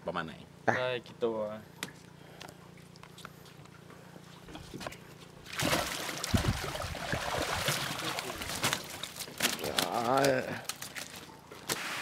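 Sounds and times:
water pouring off net: 0:05.5 - 0:11.2.

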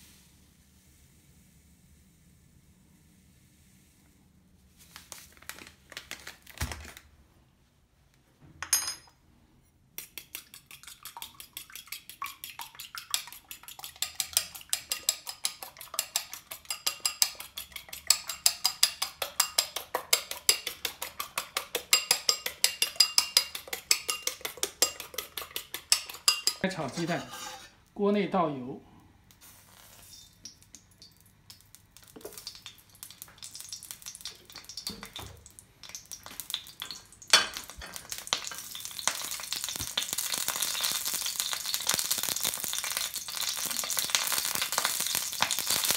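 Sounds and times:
fork beating eggs in bowl: 0:10.0 - 0:27.7.

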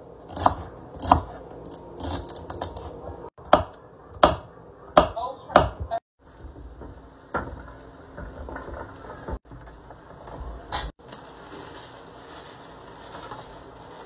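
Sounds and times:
knife chopping on wooden board: 0:03.4 - 0:05.8.

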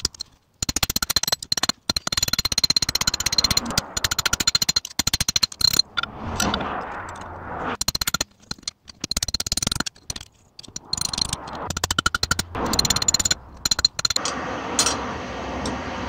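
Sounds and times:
rushing scraping noise: 0:02.2 - 0:08.6, 0:10.4 - 0:14.2.

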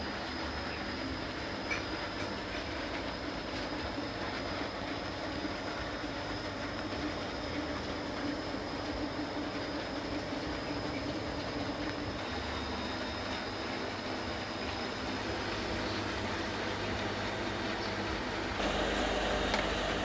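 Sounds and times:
small electric motor humming: 0:18.6 - 0:20.0.

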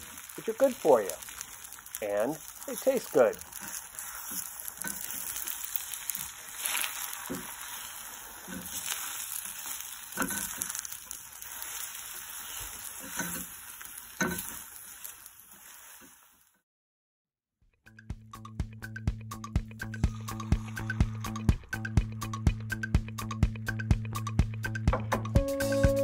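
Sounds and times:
eggs sizzling in pan: 0:00.0 - 0:16.6, 0:19.8 - 0:22.6
spatula scraping and tapping pan: 0:03.4 - 0:16.1.

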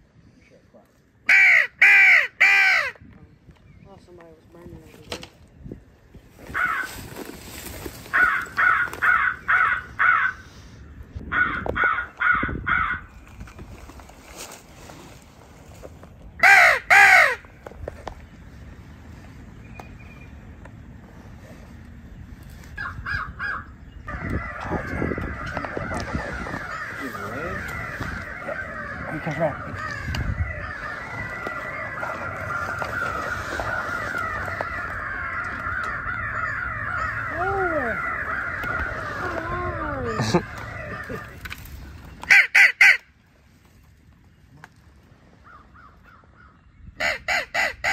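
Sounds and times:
crow cawing: 0:01.3 - 0:03.0, 0:06.5 - 0:07.0, 0:08.1 - 0:10.5, 0:11.3 - 0:13.1, 0:16.4 - 0:17.4, 0:22.8 - 0:41.5, 0:45.4 - 0:47.9.

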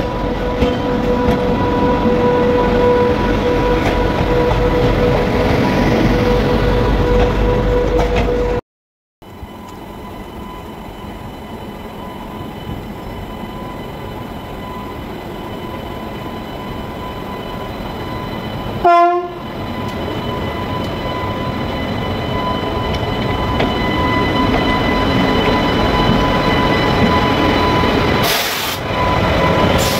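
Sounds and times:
train horn blast: 0:18.8 - 0:19.4.

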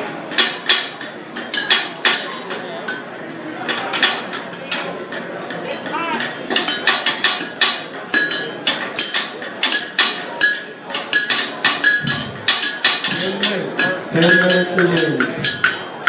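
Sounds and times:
hammers striking steel on anvil: 0:00.3 - 0:16.0.

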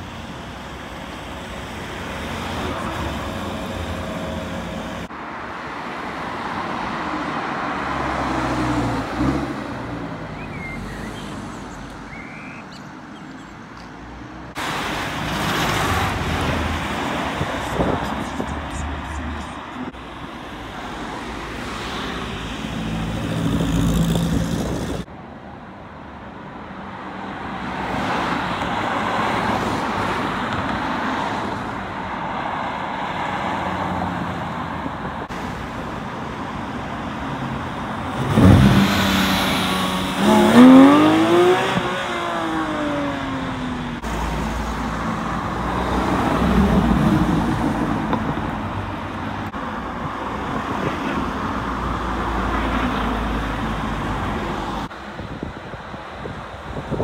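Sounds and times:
sports cars driving past: 0:37.0 - 0:49.6
engine revving hard: 0:38.1 - 0:43.4.

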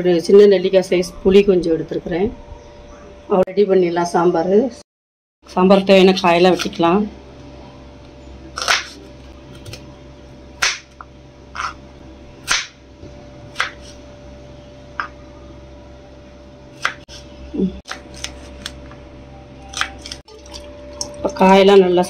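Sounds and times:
faint steady hum: 0:05.5 - 0:22.0.

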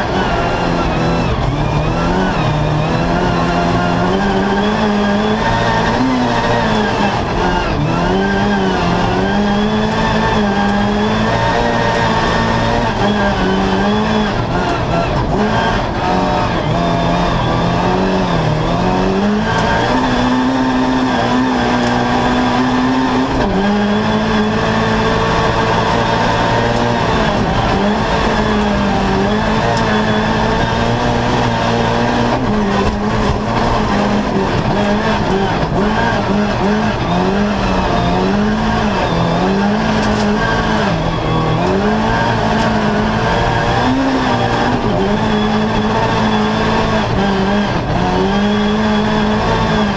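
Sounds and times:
rally car engine revving: 0:00.0 - 0:49.9
tyre and road noise: 0:00.0 - 0:49.9.

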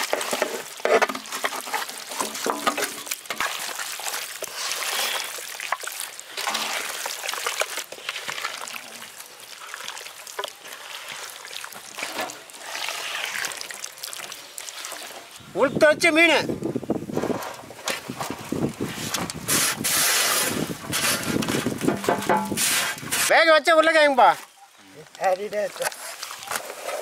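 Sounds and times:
batter sloshing while mixed: 0:00.0 - 0:15.5, 0:17.1 - 0:23.3, 0:25.7 - 0:27.0.

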